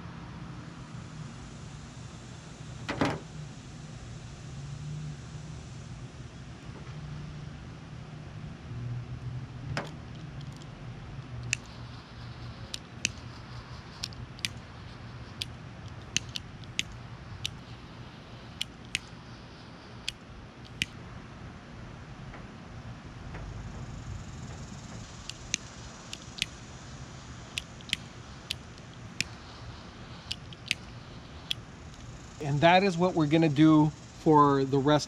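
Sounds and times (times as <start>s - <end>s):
steady low hum: 0.0s - 35.0s
hand wire tool clicking: 9.8s - 11.8s, 12.7s - 14.7s, 15.4s - 17.6s, 18.5s - 19.1s, 20.0s - 21.0s, 25.1s - 26.5s, 27.6s - 29.4s, 30.2s - 32.1s.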